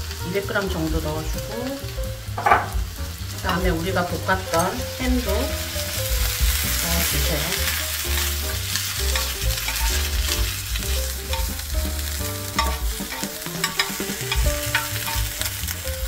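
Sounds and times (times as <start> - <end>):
music with low bass line: 0.0 - 16.0
spatula scraping pan: 6.4 - 16.0.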